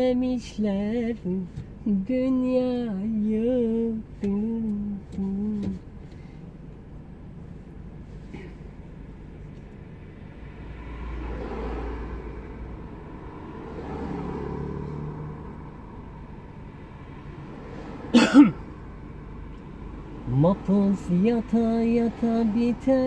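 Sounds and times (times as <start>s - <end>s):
driver vocal sound: 0.0s - 5.9s, 20.2s - 23.0s
car engine and road rumble: 0.0s - 23.0s.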